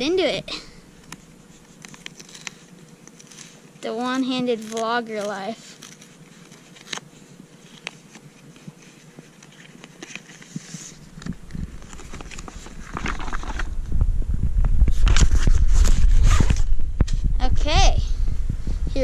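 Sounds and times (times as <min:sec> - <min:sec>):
packaging crinkling: 0:01.0 - 0:03.6, 0:11.5 - 0:13.7
packaging clicks and scrapes: 0:01.0 - 0:13.7
microphone handling rumble: 0:11.0 - 0:19.0.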